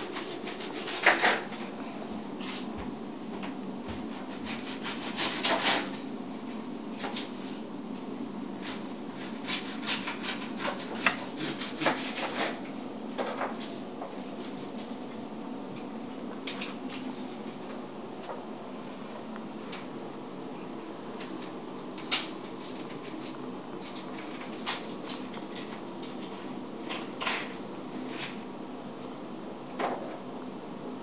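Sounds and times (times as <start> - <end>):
steady low hum: 0.0 - 31.0
claws scratching rope post: 8.7 - 12.6.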